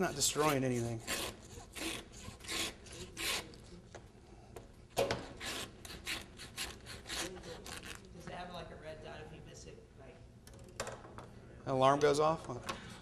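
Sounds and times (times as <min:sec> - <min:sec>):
hand saw rasping through meat: 0:00.0 - 0:03.6, 0:05.2 - 0:07.9.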